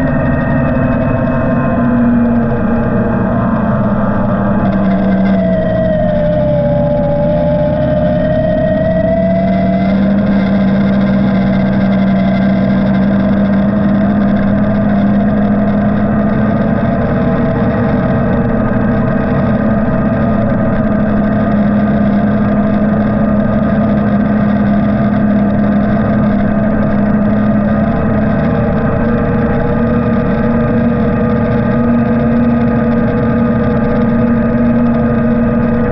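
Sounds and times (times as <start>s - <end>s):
vehicle engine driving: 0.0s - 35.9s.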